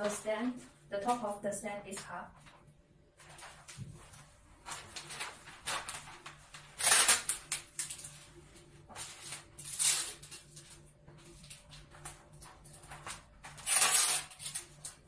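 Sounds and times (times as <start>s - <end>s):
wrapping paper crinkling: 3.2s - 15.0s.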